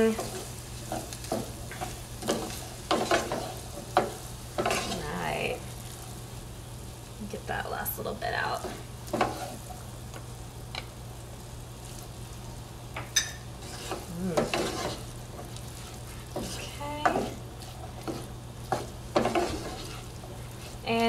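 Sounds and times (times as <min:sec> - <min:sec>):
wooden spoon scraping frying pan: 0:00.0 - 0:05.6, 0:08.6 - 0:09.8, 0:13.4 - 0:21.0
faint sizzle: 0:00.0 - 0:21.0.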